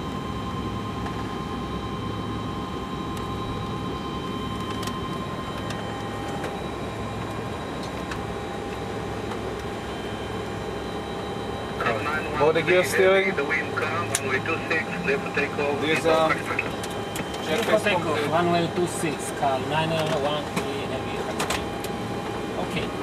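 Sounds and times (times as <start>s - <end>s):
steady whining tones: 0.0s - 23.0s
cockpit rumble and hiss: 11.4s - 23.0s.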